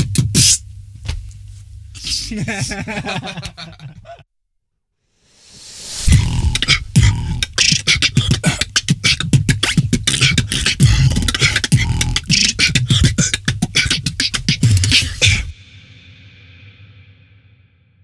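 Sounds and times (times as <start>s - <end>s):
beatboxing: 0.0s - 0.6s, 6.0s - 15.5s.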